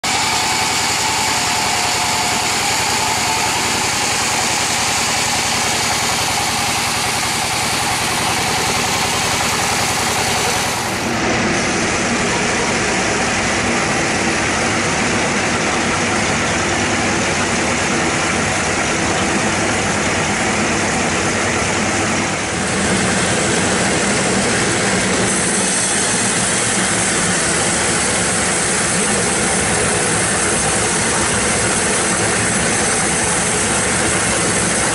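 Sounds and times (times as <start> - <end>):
band saw cutting a log: 0.0 - 12.2, 21.4 - 34.9
drive engine running: 0.0 - 34.9.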